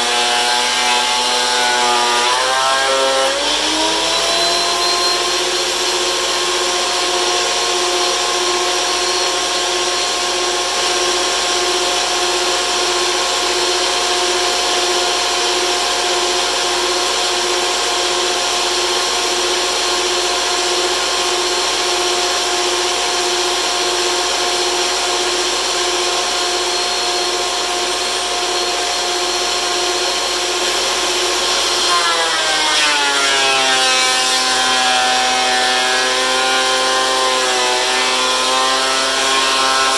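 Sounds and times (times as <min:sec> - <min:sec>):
board being planed: 0:00.0 - 0:39.9
thickness planer motor whine: 0:00.0 - 0:39.9.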